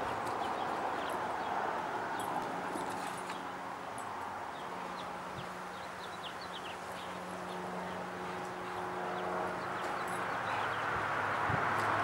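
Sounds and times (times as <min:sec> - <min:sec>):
small birds chirping: 0:04.5 - 0:11.5.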